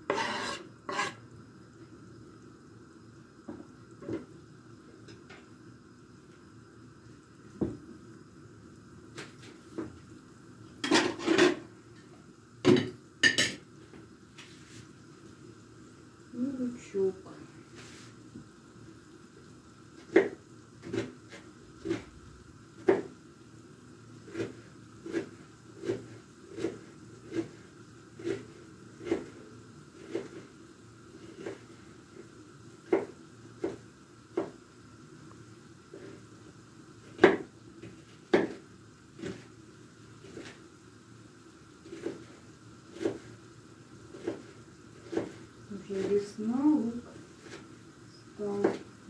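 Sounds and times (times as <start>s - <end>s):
knife chopping on wooden board: 20.1s - 22.1s, 22.8s - 23.1s, 32.9s - 34.6s, 37.2s - 37.5s, 38.3s - 38.6s, 44.1s - 45.4s.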